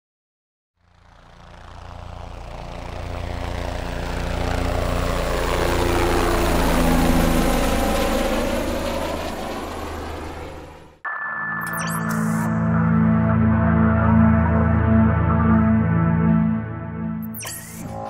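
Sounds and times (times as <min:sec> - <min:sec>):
engine running with low pulsing: 0:00.8 - 0:11.0.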